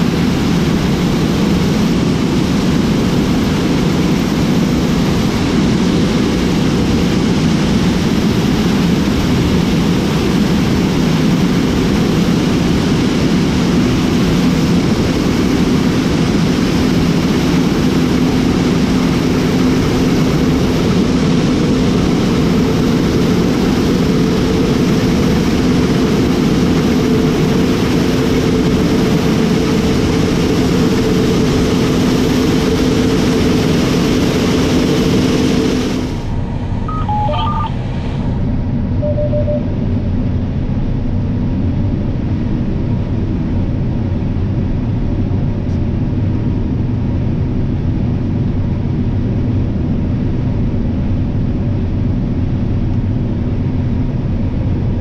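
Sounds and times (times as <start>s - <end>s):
combine harvester droning: 13.3s - 40.5s.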